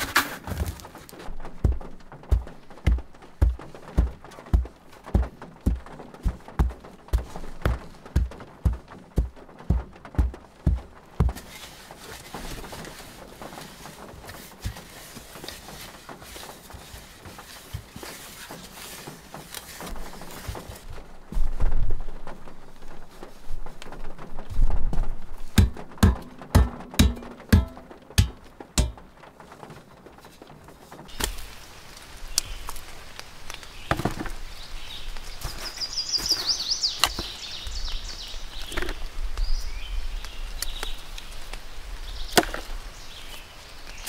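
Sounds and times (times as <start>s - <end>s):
logs knocking and thumping: 0.0s - 22.9s, 23.9s - 31.4s, 33.5s - 34.4s, 42.3s - 42.7s
bird chirping: 33.6s - 41.2s.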